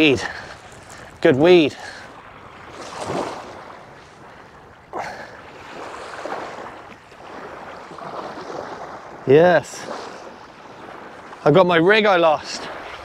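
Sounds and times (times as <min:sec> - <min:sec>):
small waves lapping at shore: 0:00.0 - 0:13.0.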